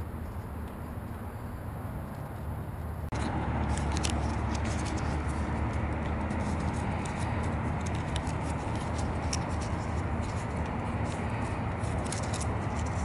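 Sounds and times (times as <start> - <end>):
steady low rumble: 0.0 - 13.0
paper crackling and clicking: 3.1 - 13.0.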